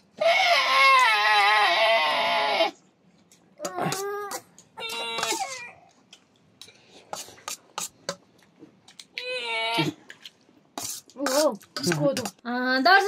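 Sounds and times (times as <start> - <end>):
baby crying: 0.2 - 2.8, 3.6 - 5.9
faint clicks and smacks: 3.0 - 6.8.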